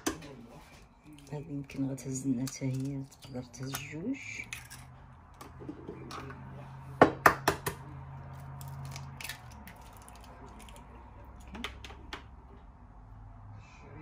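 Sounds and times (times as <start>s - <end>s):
egg shell clicks breaking: 8.6s - 10.8s.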